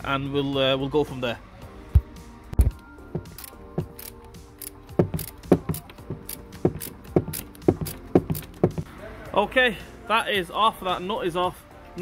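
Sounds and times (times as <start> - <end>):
hand ratchet clicking: 2.6 - 8.8.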